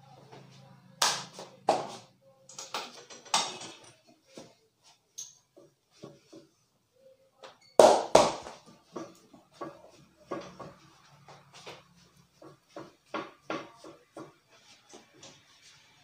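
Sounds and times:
hands patting and slapping a back: 0:01.0 - 0:02.0.

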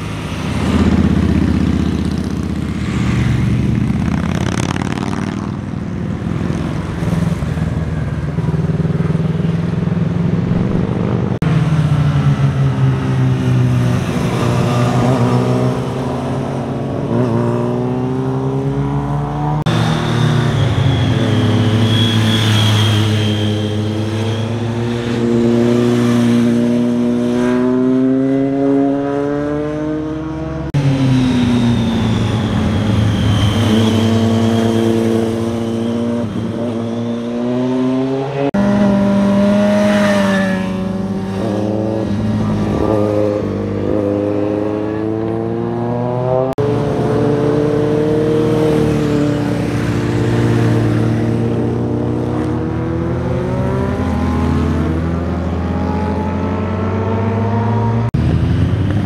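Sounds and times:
motorcycles revving past: 0:00.0 - 0:59.0.

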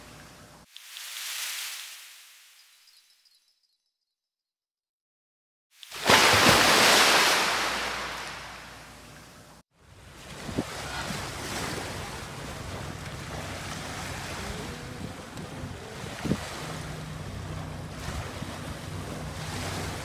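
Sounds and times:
small waves washing on sand: 0:00.7 - 0:02.4, 0:05.9 - 0:08.7, 0:10.0 - 0:20.0
surf: 0:05.9 - 0:08.8, 0:10.0 - 0:20.0
wind buffeting microphone: 0:10.2 - 0:20.0.

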